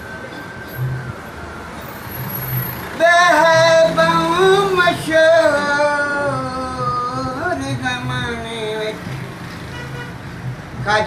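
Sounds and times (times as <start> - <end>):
low traffic rumble: 0.0 - 11.0
man singing unaccompanied: 2.9 - 9.1, 10.8 - 11.0.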